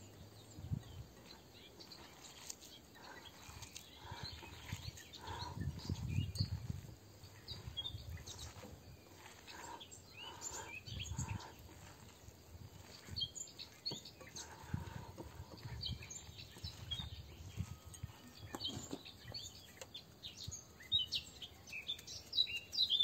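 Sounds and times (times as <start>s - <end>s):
birds chirping: 0.0s - 23.0s
hands kneading meat stuffing: 1.2s - 17.7s.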